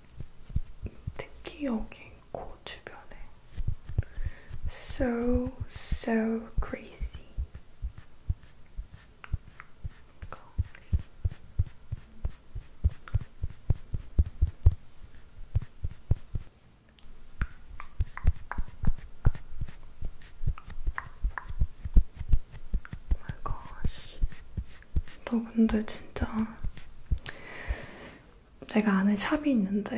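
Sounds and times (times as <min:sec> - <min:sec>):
makeup puff patting taps: 0:03.5 - 0:05.8, 0:17.4 - 0:25.2.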